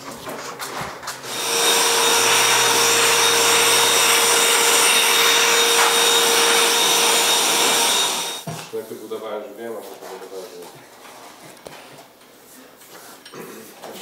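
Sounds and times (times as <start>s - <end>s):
shop vacuum running: 1.2s - 8.5s.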